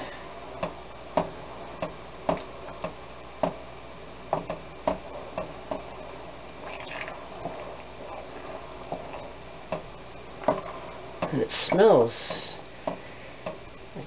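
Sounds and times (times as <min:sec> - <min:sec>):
wooden spoon stirring sauce: 0:10.4 - 0:12.6.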